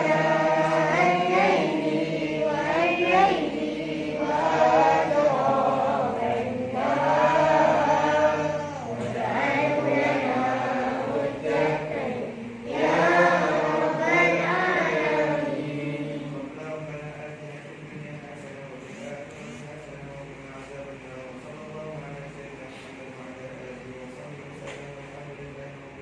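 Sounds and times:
group chanting in unison: 0.0s - 16.9s.

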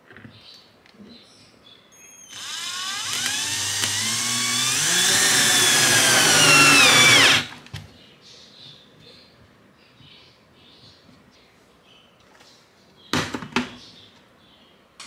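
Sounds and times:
power drill drilling into plastic: 2.3s - 7.6s.

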